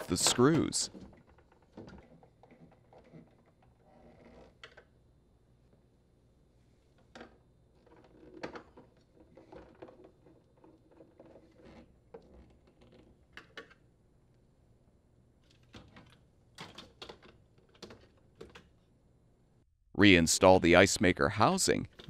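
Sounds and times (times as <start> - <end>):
plastic parts clicking and knocking: 0.0 - 4.9, 7.0 - 13.8, 15.4 - 18.8.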